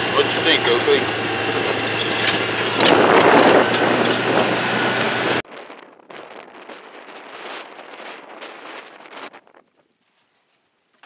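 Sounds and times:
low engine hum: 0.0s - 5.4s
road noise: 0.0s - 5.4s
wind on microphone: 1.7s - 10.2s.

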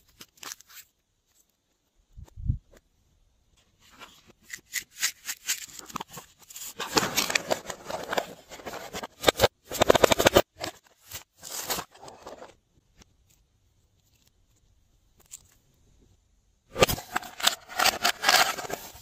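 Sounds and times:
paper and plastic rustling: 3.8s - 12.6s, 16.8s - 19.0s.

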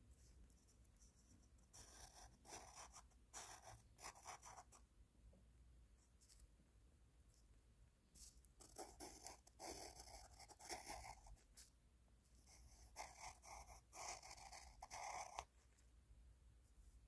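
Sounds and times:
pencil scratching on paper: 0.4s - 4.8s, 8.2s - 11.7s, 12.4s - 15.5s.

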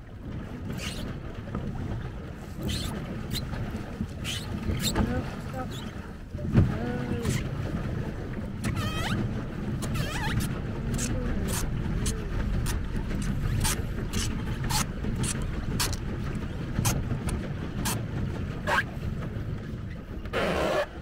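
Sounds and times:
water against hull: 0.0s - 21.0s
wind rumble on microphone: 0.0s - 21.0s
pedal splashing ticks: 2.6s - 5.1s, 8.4s - 19.4s.

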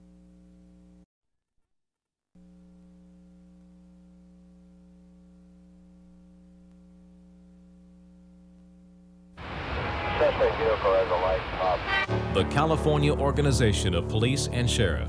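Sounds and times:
mains hum: 0.0s - 1.1s, 2.4s - 12.1s.

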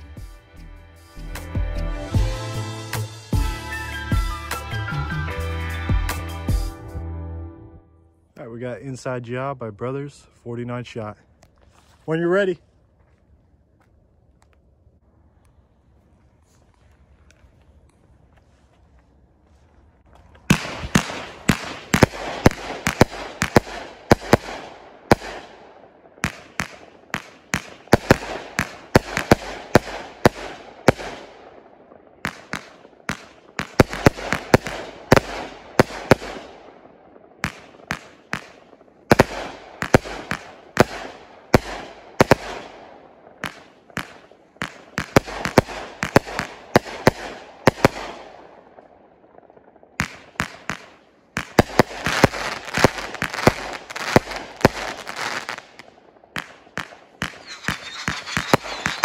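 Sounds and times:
firework bangs: 20.4s - 59.0s
firework hiss: 57.3s - 59.0s.

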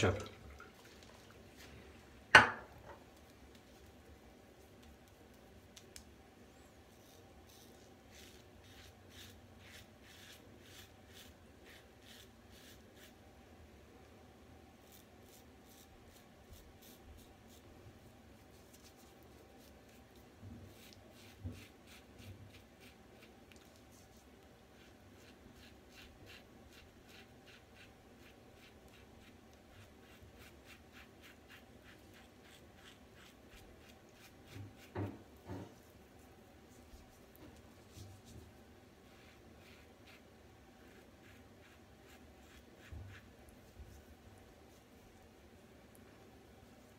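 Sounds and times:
razor scraping stubble: 6.9s - 13.2s, 20.7s - 24.1s, 40.8s - 43.4s.

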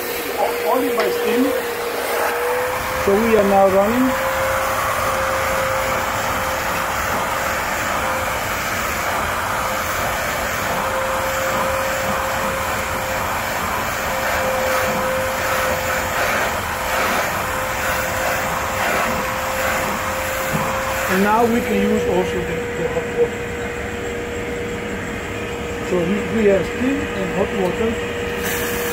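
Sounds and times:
steam hissing from nozzle: 0.0s - 22.5s, 28.3s - 28.9s
steam cleaner whine: 0.0s - 28.9s.

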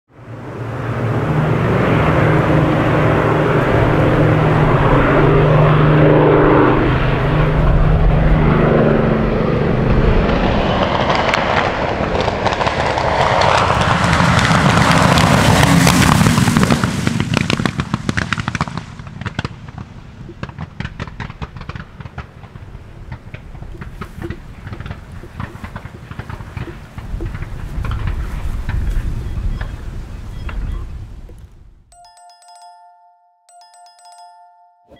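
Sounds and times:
airplane piston engine droning: 22.8s - 27.5s.

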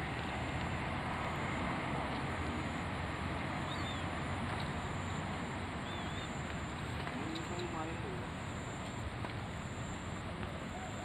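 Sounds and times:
steady rushing noise: 0.0s - 11.0s
bird chirps: 5.8s - 6.4s.

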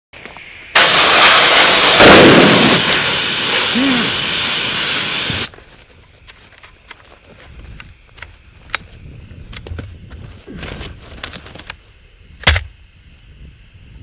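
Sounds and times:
compressed air hissing: 0.3s - 5.5s.

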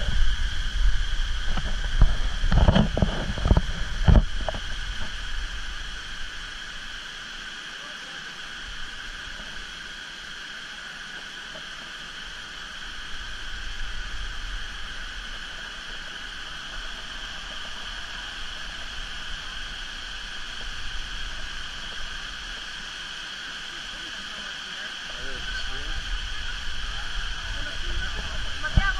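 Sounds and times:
low rumbling bumps: 0.0s - 5.8s, 25.4s - 28.9s
high insect drone: 0.0s - 28.9s
water cascading: 0.0s - 28.9s.

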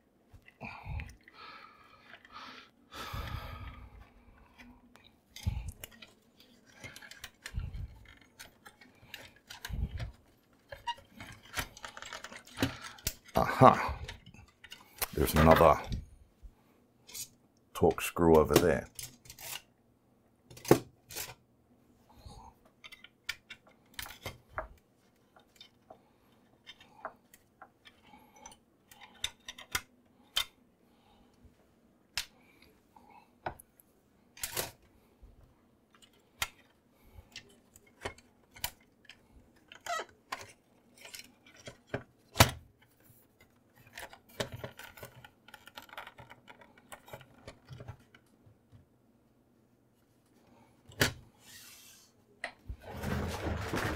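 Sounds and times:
rubbing and rattling: 52.8s - 53.9s.

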